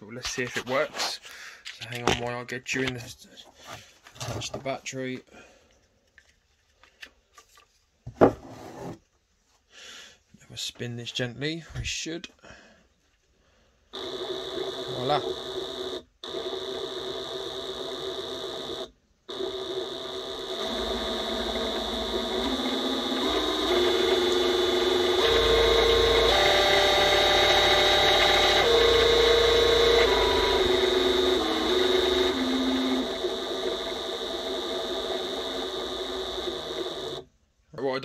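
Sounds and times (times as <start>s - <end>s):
power tool motor whining: 14.0s - 37.3s.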